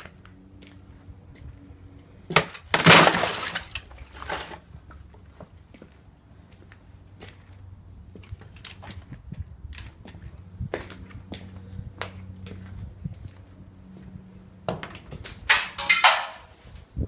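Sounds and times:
thin ice cracking and shattering: 0:02.7 - 0:04.4.

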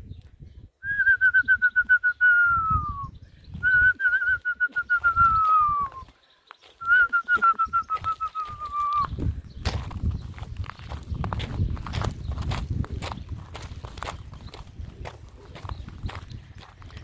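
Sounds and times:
person whistling warbling calls: 0:00.8 - 0:06.1, 0:06.8 - 0:09.2.

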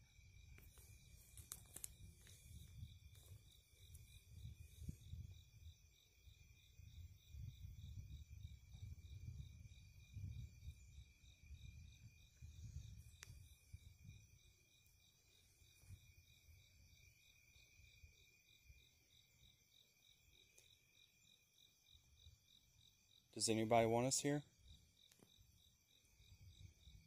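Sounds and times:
crickets chirping: 0:00.0 - 0:27.0
low rumble on microphone: 0:00.3 - 0:14.4.

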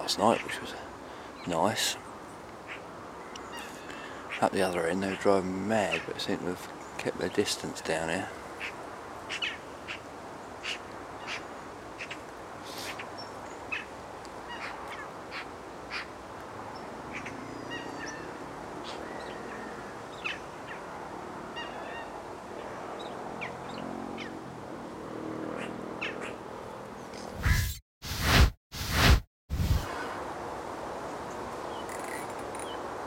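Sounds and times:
steady background hiss: 0:00.0 - 0:21.1
waterbirds calling: 0:00.0 - 0:24.5, 0:25.5 - 0:26.4.

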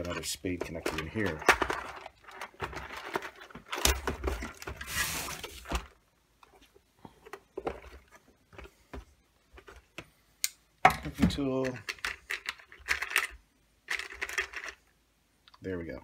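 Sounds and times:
small metal parts rattling: 0:00.0 - 0:04.6, 0:11.6 - 0:14.8.

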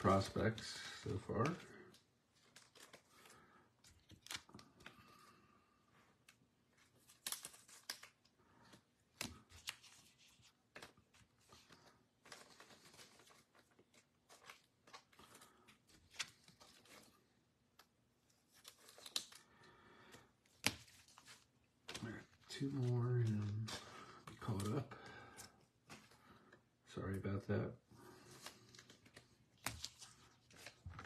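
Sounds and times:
trading cards being handled: 0:00.0 - 0:05.4, 0:06.1 - 0:27.2, 0:28.0 - 0:31.0.

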